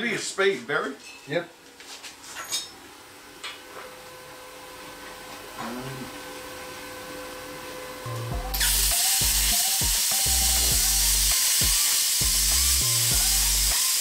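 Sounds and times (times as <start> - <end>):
uneven low buzz: 5.6 - 9.6, 10.3 - 11.3
plasma cutter arc hissing: 8.5 - 14.0.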